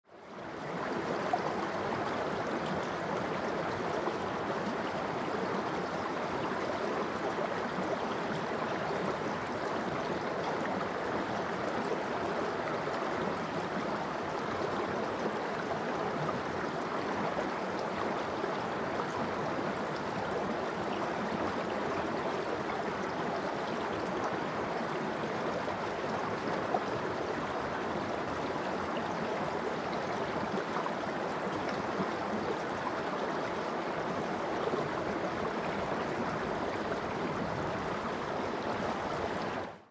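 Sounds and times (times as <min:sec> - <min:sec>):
stream flowing over pebbles: 0:00.1 - 0:39.9.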